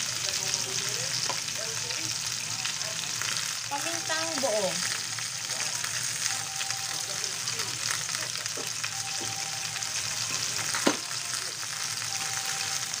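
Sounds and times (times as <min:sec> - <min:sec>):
food sizzling in a metal pot: 0:00.0 - 0:13.0.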